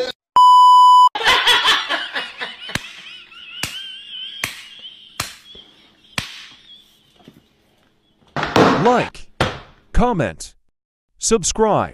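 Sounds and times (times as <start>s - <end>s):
test-tone beep: 0.4s - 1.1s
sharp smacks: 3.6s - 6.6s.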